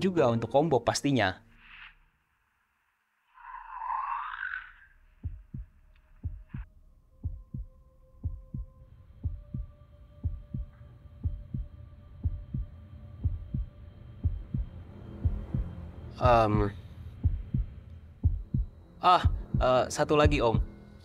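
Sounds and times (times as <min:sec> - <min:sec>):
faint hum: 0:04.5 - 0:21.0
heartbeat thumps: 0:05.2 - 0:20.7.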